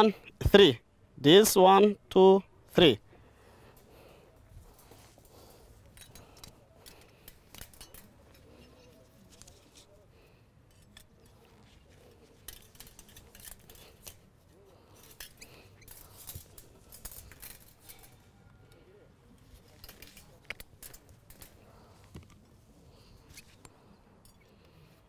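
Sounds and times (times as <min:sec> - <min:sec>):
metal wire clicking and rattling: 0:04.6 - 0:10.0, 0:10.6 - 0:22.4.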